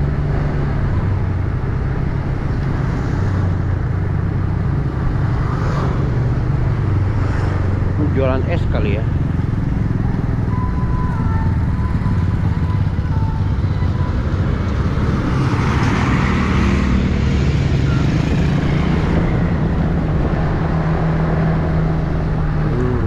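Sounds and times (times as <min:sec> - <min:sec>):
wind and road noise: 0:00.0 - 0:23.0
motorbikes passing close by: 0:04.3 - 0:10.8, 0:11.4 - 0:23.0
motorcycle engine running: 0:07.8 - 0:15.5.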